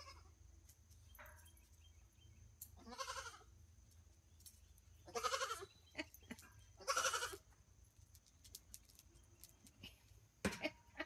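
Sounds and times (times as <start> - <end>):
goat bleating: 0.0 - 0.3, 2.8 - 3.5, 5.0 - 6.1, 6.8 - 7.4.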